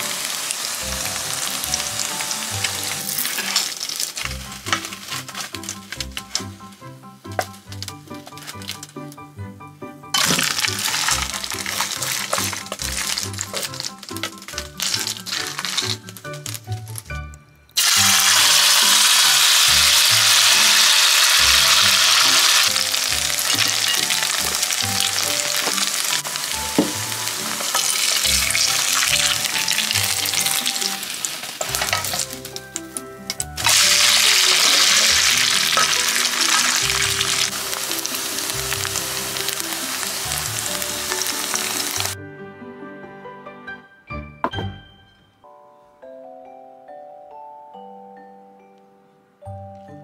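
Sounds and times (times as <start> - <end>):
food sizzling in hot oil: 0.0 - 6.7, 10.2 - 16.1, 17.8 - 33.0, 33.6 - 42.2
soft background music: 0.0 - 50.0.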